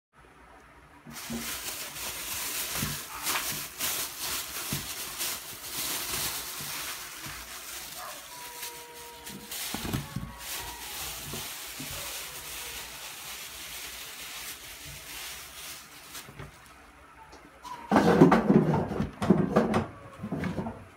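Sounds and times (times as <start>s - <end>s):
plastic bag crumpling: 1.1s - 16.8s.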